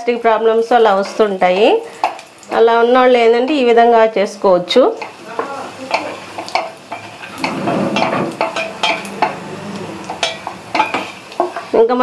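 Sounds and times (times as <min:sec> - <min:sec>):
nuts sizzling in fat: 0:00.0 - 0:12.0
wooden spatula scraping a pan: 0:00.8 - 0:02.2, 0:05.0 - 0:11.8
spatula clinking on pan: 0:01.0 - 0:02.3, 0:05.0 - 0:11.8.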